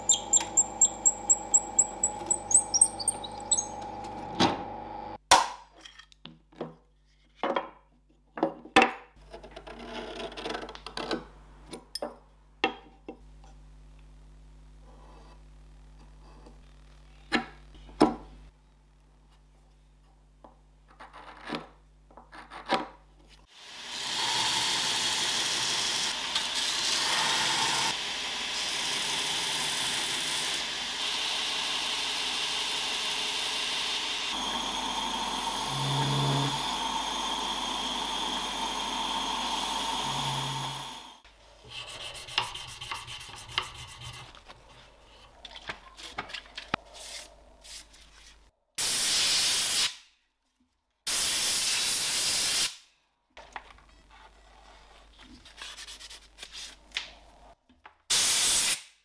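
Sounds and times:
belt grinder grinding steel: 0.0 - 4.2, 24.0 - 41.2
spray hiss: 48.8 - 49.9, 51.1 - 52.8, 58.1 - 58.8.

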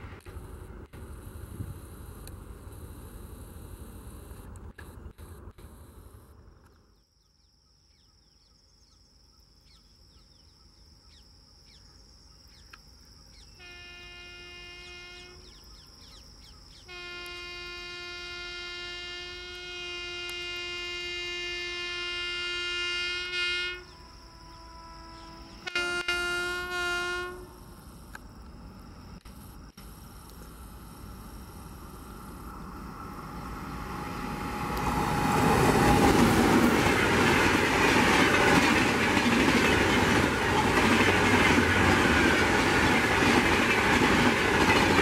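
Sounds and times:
train rumble: 0.0 - 6.5, 16.9 - 45.0
high insect drone: 0.2 - 45.0
locomotive air horn blasts: 13.6 - 15.6, 16.8 - 27.7, 33.1 - 36.4.

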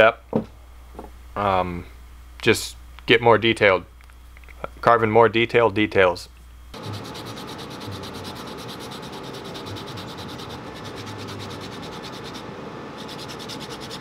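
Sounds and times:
scraping strokes on wood: 6.8 - 14.0.

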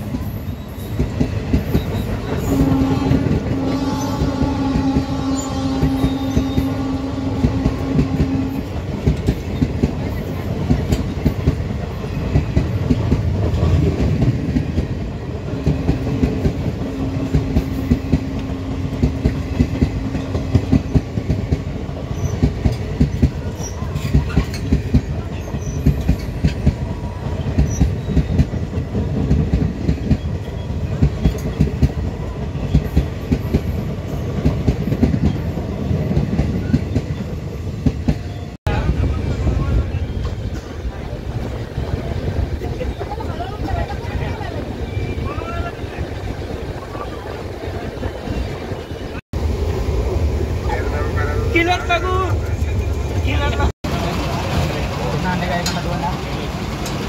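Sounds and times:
train wheels clattering over rail joints: 7.4 - 15.0, 15.6 - 38.3.

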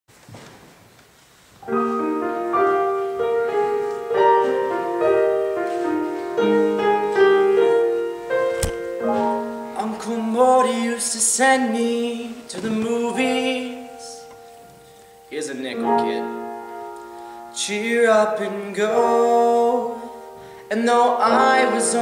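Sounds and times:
piano playing chords: 1.6 - 22.0
sharp click: 8.5 - 8.9.

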